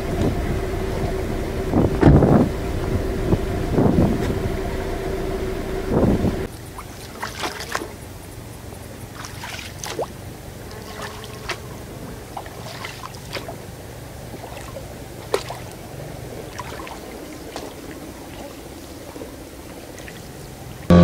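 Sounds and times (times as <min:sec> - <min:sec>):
oars splashing in water: 0:00.0 - 0:20.9.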